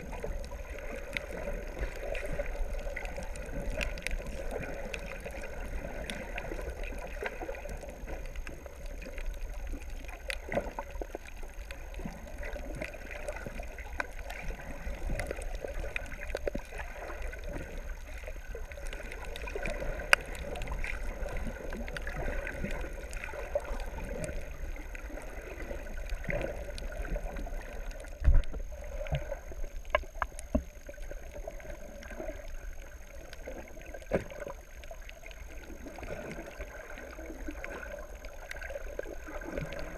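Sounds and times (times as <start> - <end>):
faint underwater clicks and crackles: 0.0 - 39.9
underwater rumble of moving water: 0.0 - 39.9.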